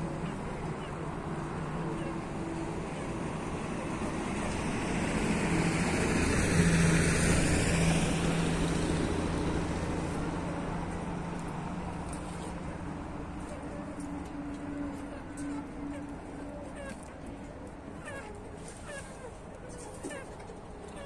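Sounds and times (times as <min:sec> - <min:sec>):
vehicle driving past: 0:00.0 - 0:16.4.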